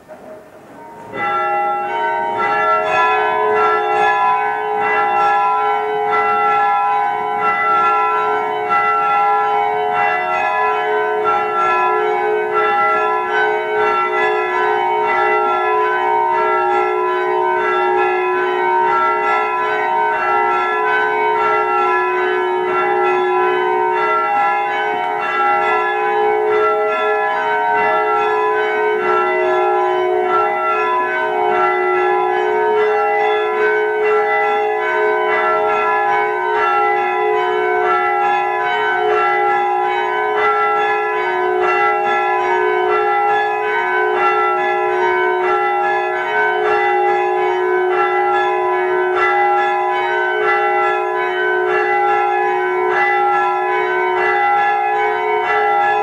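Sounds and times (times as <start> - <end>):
church bells change ringing: 0.0 - 56.0.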